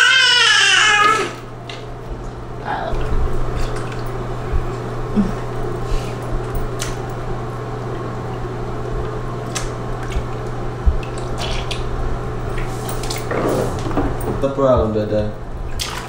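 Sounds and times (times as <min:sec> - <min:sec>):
steady low hum: 0:00.0 - 0:16.0
bath water splashing: 0:02.6 - 0:06.5, 0:09.4 - 0:16.0.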